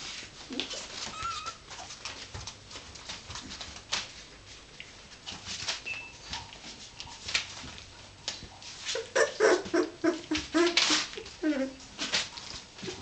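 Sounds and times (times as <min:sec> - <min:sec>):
puppies whimpering: 0:00.5 - 0:01.9, 0:08.9 - 0:11.8.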